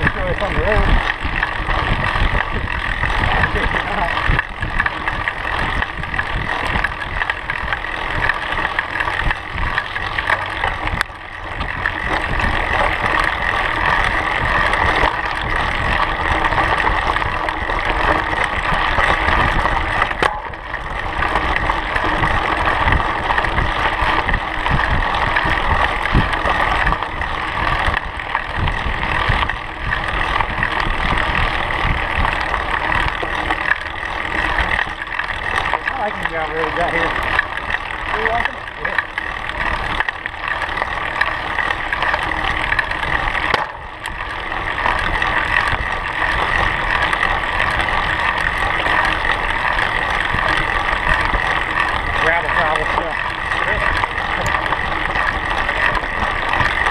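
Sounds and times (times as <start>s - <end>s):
wind on microphone: 0.0s - 8.3s
bike tyres rolling on gravel: 0.0s - 56.9s.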